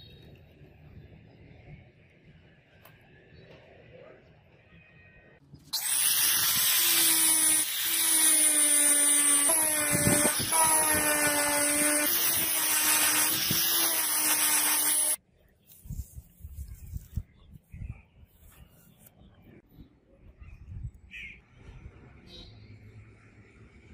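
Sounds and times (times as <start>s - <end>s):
angle grinder polishing metal: 5.8s - 15.2s.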